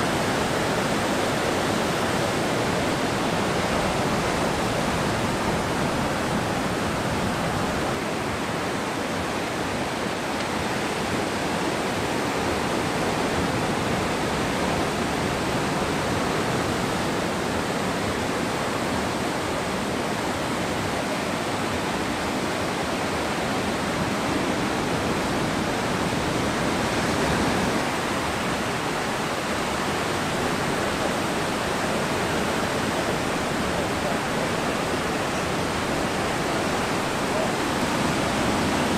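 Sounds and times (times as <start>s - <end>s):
ocean surf breaking: 0.0s - 8.3s, 23.6s - 38.9s.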